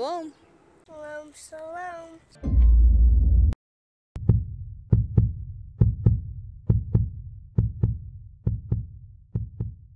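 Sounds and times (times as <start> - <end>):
heartbeat thumps: 4.2 - 9.9.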